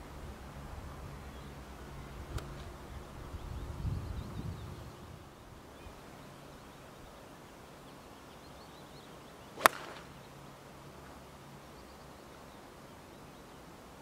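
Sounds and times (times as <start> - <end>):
golf club striking ball: 9.6 - 10.2.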